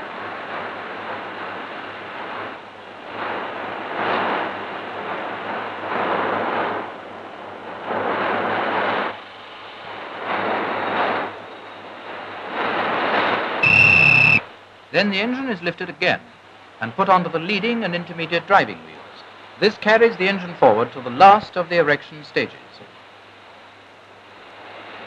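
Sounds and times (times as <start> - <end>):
rushing hissing noise: 7.5 - 23.6.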